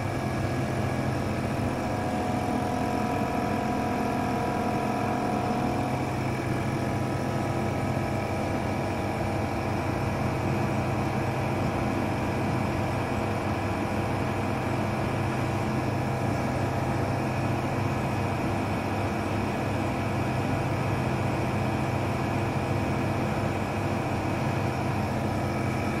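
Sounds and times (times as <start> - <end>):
nebulizer compressor humming: 0.0 - 9.3.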